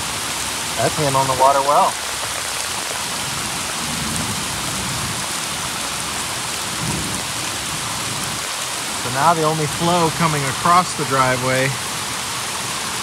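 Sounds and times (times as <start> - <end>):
heavy rain pouring: 0.0 - 13.0
raindrops clicking on microphone: 0.7 - 11.8
thunder rumbles: 3.2 - 9.8.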